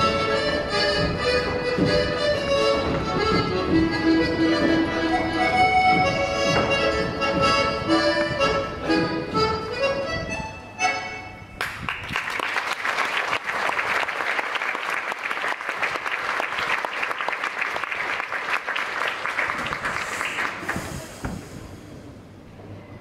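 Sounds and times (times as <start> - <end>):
audience applauding: 11.6 - 20.9.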